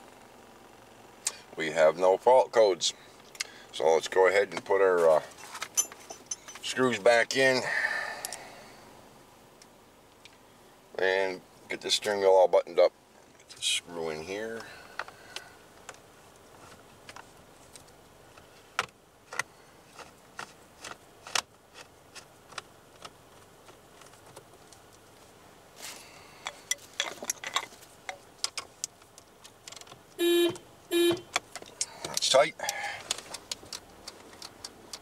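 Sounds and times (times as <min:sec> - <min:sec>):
car horn honk: 0:30.2 - 0:31.4.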